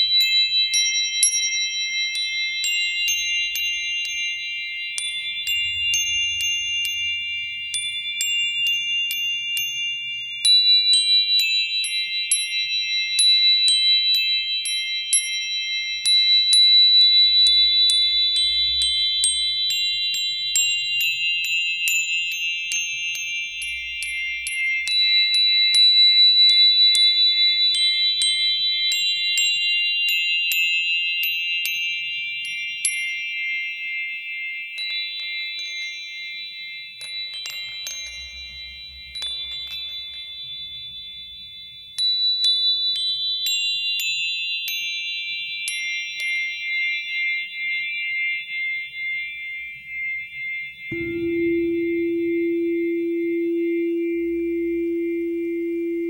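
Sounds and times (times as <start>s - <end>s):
tinkling chime notes: 0.0s - 56.0s
sustained high tones: 50.9s - 56.0s.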